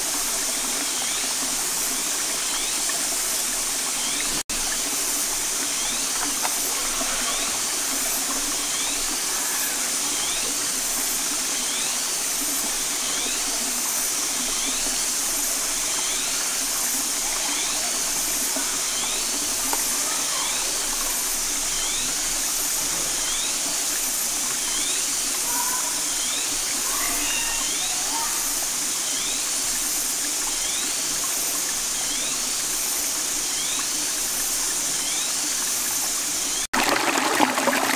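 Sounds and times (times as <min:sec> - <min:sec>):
rocky stream rushing: 0:00.0 - 0:29.0.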